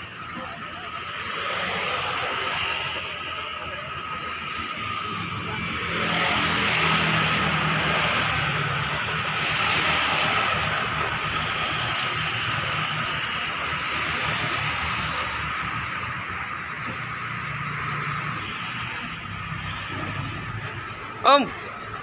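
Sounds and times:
street traffic rumble: 0.0s - 22.0s.

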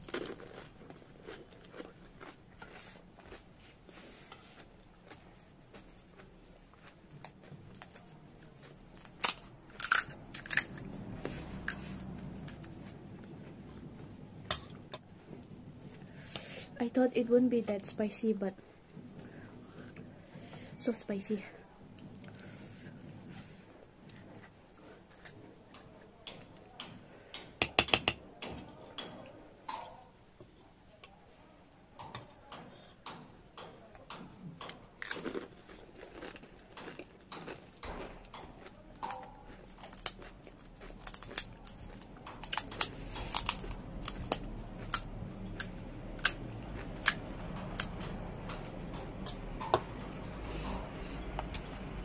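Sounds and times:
chewing crisp shells: 0.0s - 16.2s, 24.0s - 27.4s, 33.6s - 52.0s.

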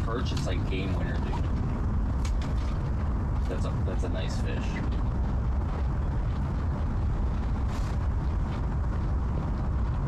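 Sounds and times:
low rumble: 0.0s - 10.0s
faint rustle: 7.4s - 8.7s.

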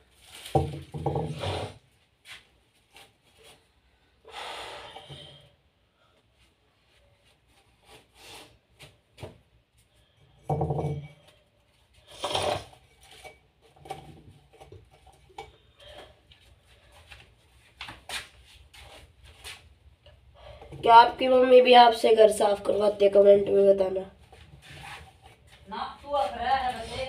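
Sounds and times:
household objects knocking and clicking: 0.4s - 1.4s, 10.4s - 11.2s.

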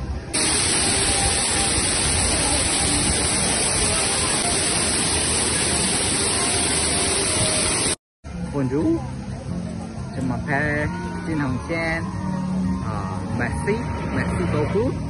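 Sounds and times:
fountain water splashing: 0.3s - 8.0s.

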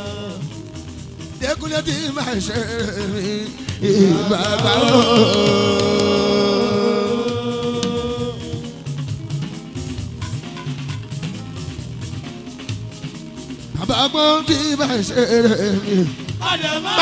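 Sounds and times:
man singing: 0.0s - 0.6s, 1.4s - 8.8s, 13.8s - 17.0s
band playing: 1.4s - 17.0s.

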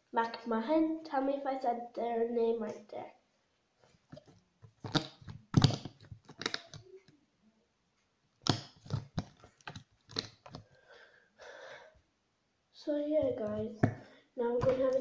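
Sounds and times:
slime squeezed with sticky clicks: 4.8s - 7.0s.

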